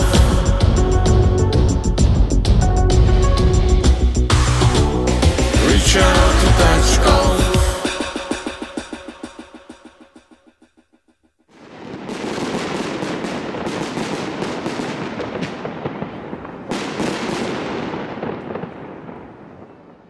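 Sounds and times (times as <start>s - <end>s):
fireworks bangs and crackling: 0.0s - 1.4s, 11.5s - 20.0s
song: 0.0s - 9.9s.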